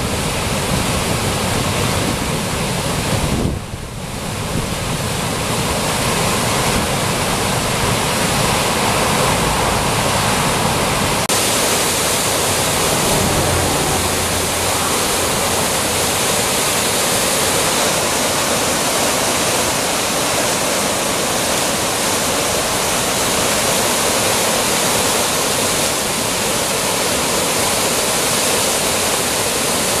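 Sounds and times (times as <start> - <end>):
floodwater rushing over rocks: 0.0 - 30.0
low rumble of water: 0.0 - 30.0.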